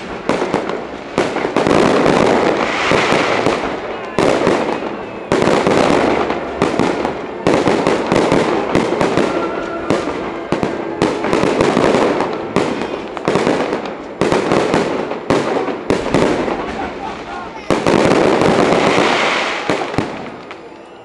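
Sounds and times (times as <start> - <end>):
fireworks bangs: 0.0 - 21.0
fireworks crackling: 0.0 - 21.0.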